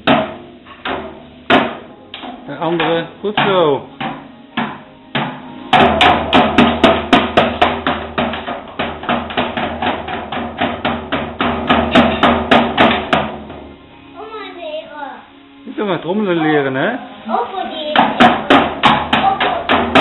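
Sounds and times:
drum kit fast rhythm: 2.8s - 13.6s, 17.3s - 20.0s.

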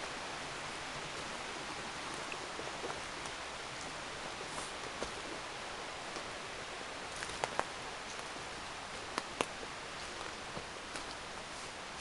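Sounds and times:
steady hiss: 0.0s - 12.0s
twigs snapping: 7.1s - 8.3s, 9.0s - 11.2s.

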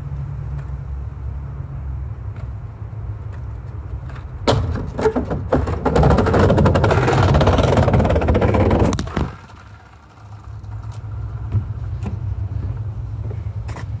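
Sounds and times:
skateboard wheels rolling over planks: 3.3s - 12.4s.

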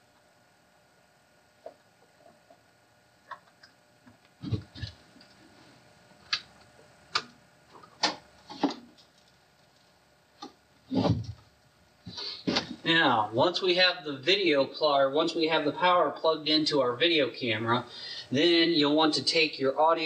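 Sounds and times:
fuller thumps: 10.9s - 12.9s.

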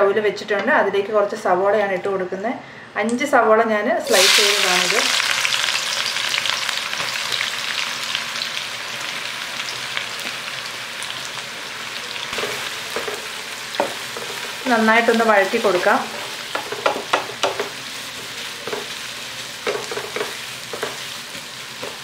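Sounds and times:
onions sizzling in oil: 4.0s - 22.0s.

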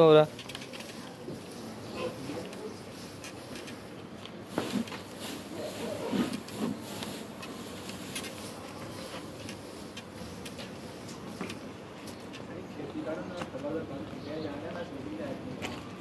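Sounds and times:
hands rustling dry feed: 0.4s - 12.5s.

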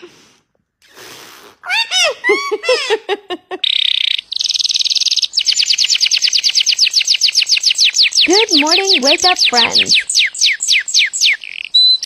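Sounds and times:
canary singing trills: 3.6s - 12.0s
high-pitched speech-like chatter: 8.3s - 10.0s.

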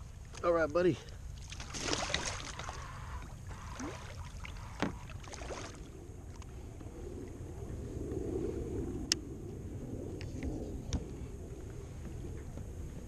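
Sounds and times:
water splashing beside a kayak: 0.0s - 6.6s.

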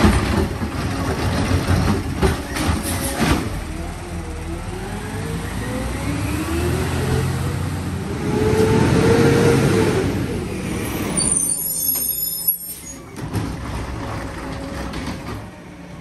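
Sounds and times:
diesel engine revving: 3.0s - 11.2s.

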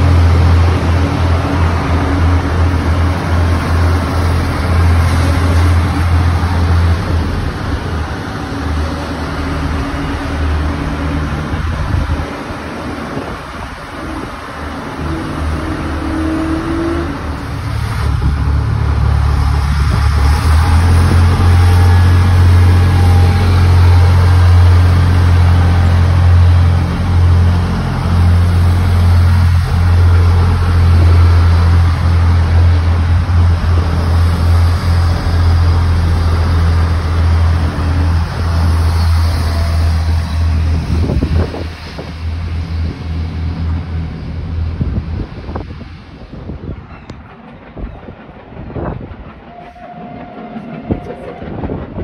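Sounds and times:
diesel train engine drone: 0.0s - 52.0s
wheel and rail noise: 0.0s - 52.0s
wind on microphone: 40.5s - 52.0s.

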